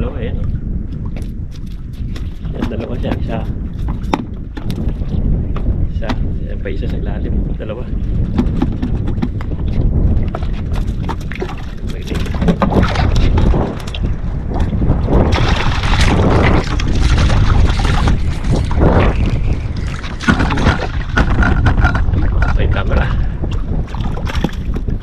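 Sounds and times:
wind rumbling on microphone: 0:00.0 - 0:25.0
knocks and clatters: 0:08.2 - 0:14.0, 0:15.3 - 0:23.0.

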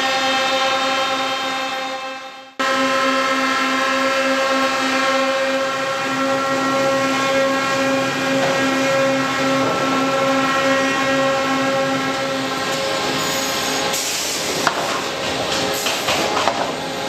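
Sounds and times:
sawmill machinery humming: 0:00.0 - 0:17.0.

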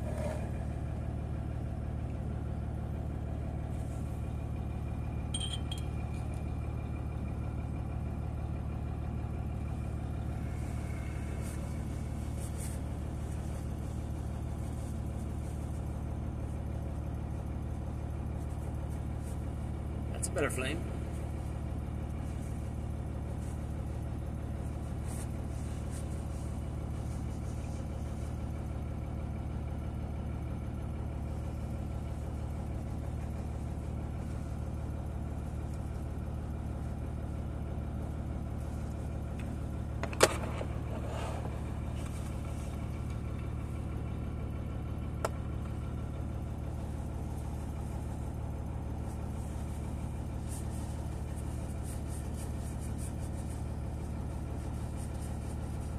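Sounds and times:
low machine hum: 0:00.0 - 0:55.9.

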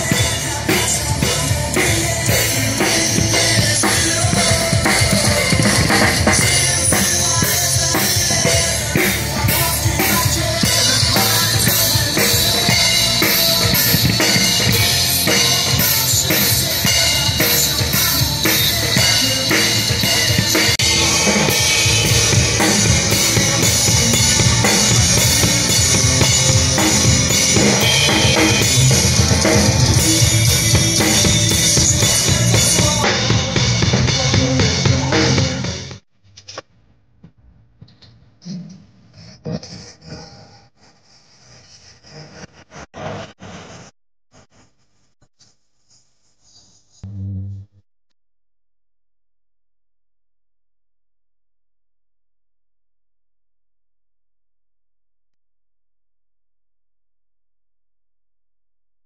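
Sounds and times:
acoustic drum kit playing: 0:00.0 - 0:35.8.

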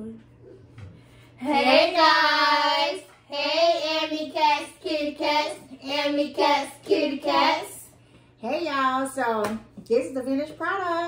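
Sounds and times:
high voice singing unaccompanied: 0:01.4 - 0:07.9.

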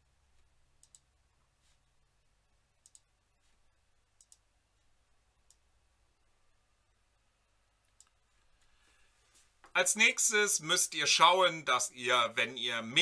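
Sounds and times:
computer mouse clicks: 0:00.8 - 0:01.1, 0:02.8 - 0:03.1, 0:04.2 - 0:04.5, 0:05.4 - 0:05.7, 0:07.8 - 0:08.6.

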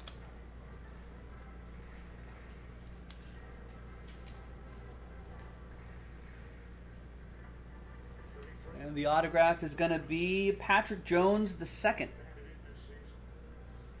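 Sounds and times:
cards sliding ticks: 0:00.0 - 0:00.2
low electrical hum: 0:00.0 - 0:14.0.

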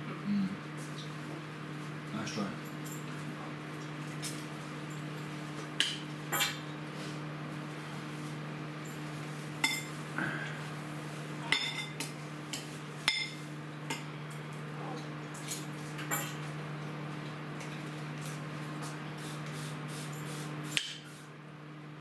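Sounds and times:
steady low hum: 0:00.0 - 0:22.0
dishes and utensils clinking: 0:09.6 - 0:10.0, 0:11.5 - 0:12.0.

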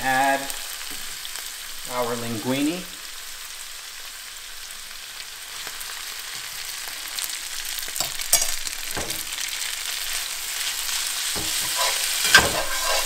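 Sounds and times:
vegetables sizzling in oil: 0:00.0 - 0:13.0
spatula knocking and scraping pan: 0:11.3 - 0:13.0.

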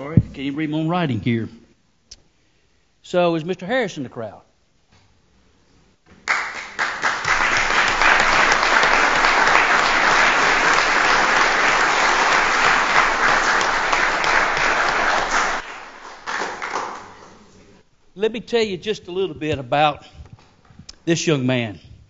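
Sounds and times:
audience applauding: 0:06.2 - 0:17.5.

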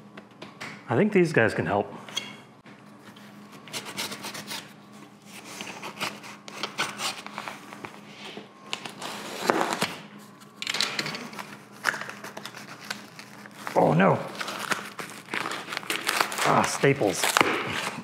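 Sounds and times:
knife slicing packing tape: 0:03.7 - 0:04.7.

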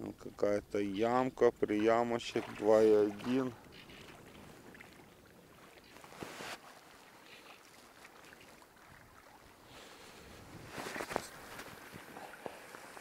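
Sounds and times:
lake water lapping at shore: 0:00.3 - 0:13.0
wind on microphone: 0:10.2 - 0:12.3.

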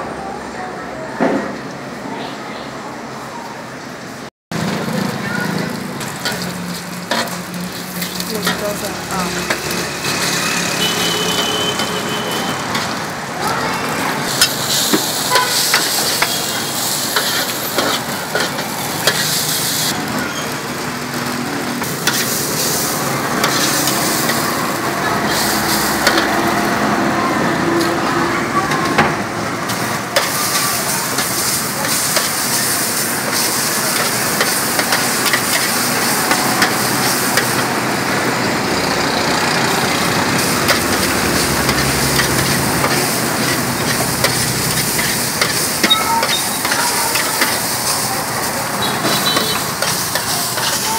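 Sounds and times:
noodles sizzling in hot oil: 0:04.6 - 0:28.3, 0:29.2 - 0:50.9
metal spatula scraping wok: 0:06.0 - 0:13.1, 0:14.3 - 0:20.6, 0:21.8 - 0:24.5, 0:25.1 - 0:26.6, 0:40.4 - 0:48.0, 0:48.8 - 0:50.9.

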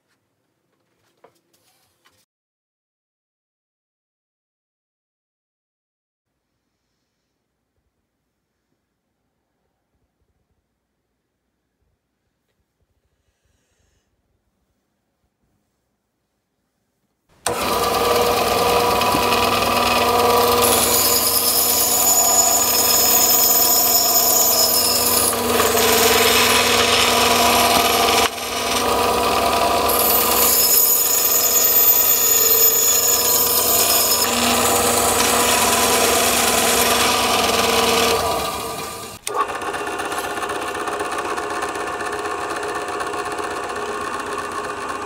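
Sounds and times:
bandsaw cutting wood: 0:17.4 - 0:45.0.

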